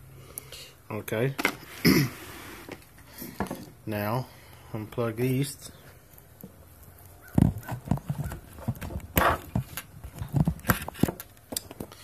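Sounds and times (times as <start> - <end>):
hands fumbling with phone and wires: 7.2 - 12.0.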